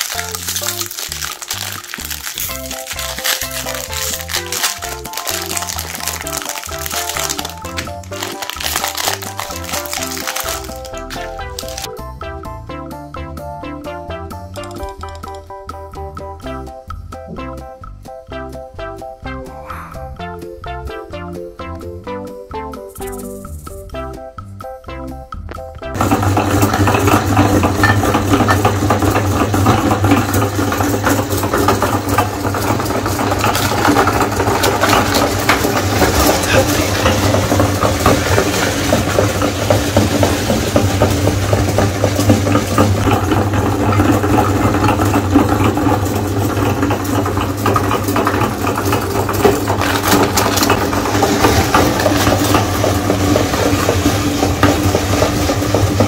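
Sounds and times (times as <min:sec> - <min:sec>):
cookies crunching in grinder: 0:00.0 - 0:11.9, 0:26.0 - 0:56.0
meat grinder motor hum: 0:00.0 - 0:11.9, 0:26.0 - 0:56.0.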